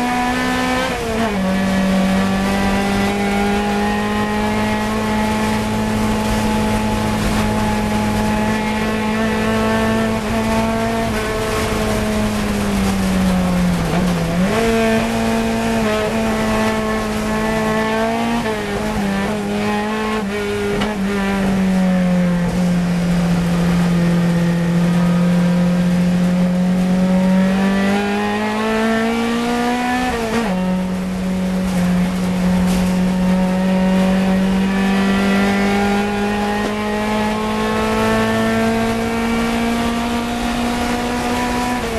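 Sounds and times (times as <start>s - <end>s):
car engine revving hard: 0.0s - 41.9s.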